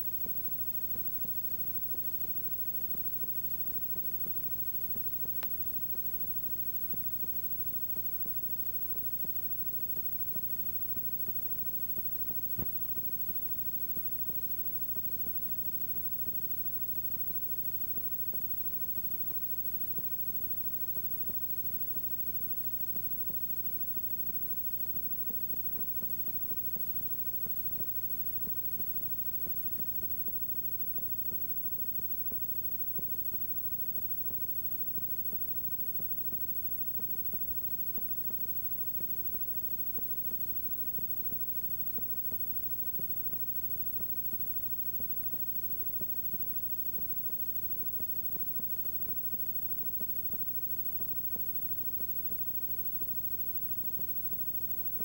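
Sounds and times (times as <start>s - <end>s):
faint ticks: 0.0s - 55.0s
tape hiss: 0.0s - 55.0s.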